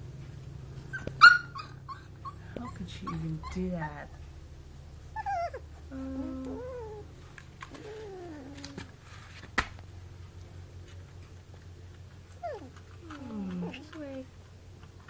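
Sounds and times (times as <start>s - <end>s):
low steady hum: 0.0s - 15.0s
puppy whining: 0.8s - 4.3s, 5.1s - 9.0s, 11.9s - 15.0s.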